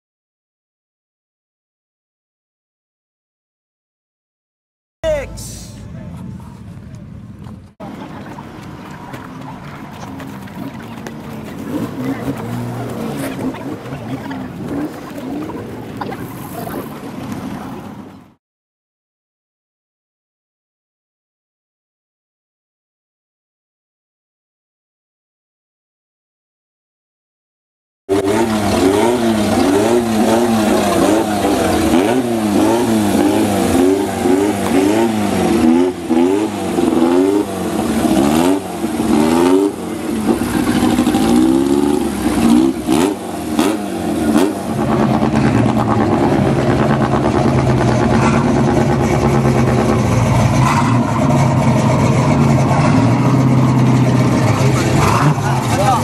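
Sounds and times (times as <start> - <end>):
truck engine revving: 9.8 - 17.1, 28.1 - 56.0.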